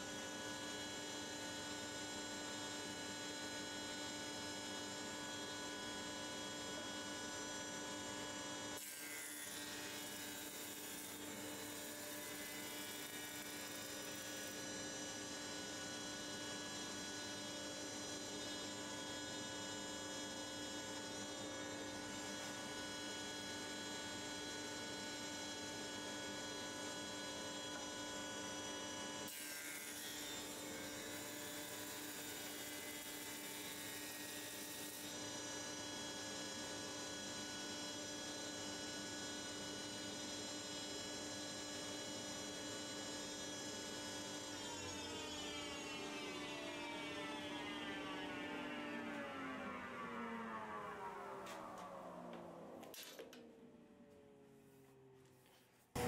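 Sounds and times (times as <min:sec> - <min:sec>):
planer motor humming: 0:44.5 - 0:52.9.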